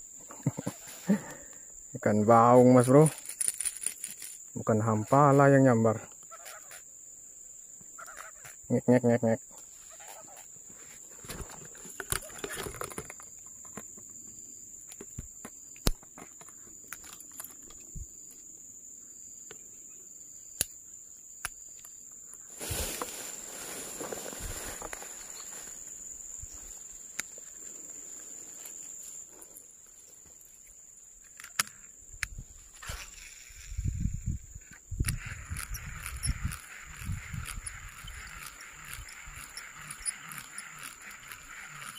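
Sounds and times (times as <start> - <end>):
faint insect chirps: 0.0 - 41.9
high-pitched insect drone: 0.0 - 41.9
rustling through grass and leaves: 0.1 - 6.8, 22.4 - 31.6, 32.3 - 41.9
handling clicks and knocks: 11.2 - 14.2.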